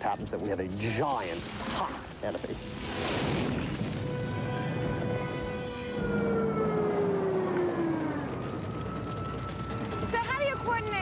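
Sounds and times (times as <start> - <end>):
music: 2.6 - 6.4, 8.7 - 11.0
fire engine siren: 3.8 - 11.0.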